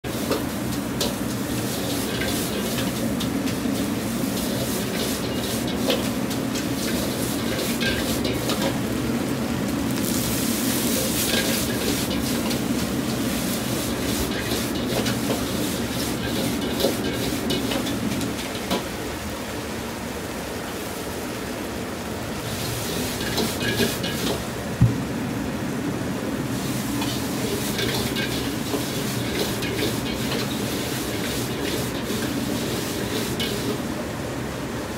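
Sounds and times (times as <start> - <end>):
noodles sizzling in a wok: 0.0 - 24.6, 26.4 - 34.0
low rumble of wok burner: 0.0 - 34.9
ladle clinking and scraping wok: 0.1 - 8.9, 10.1 - 18.9, 22.5 - 24.5, 26.6 - 33.8.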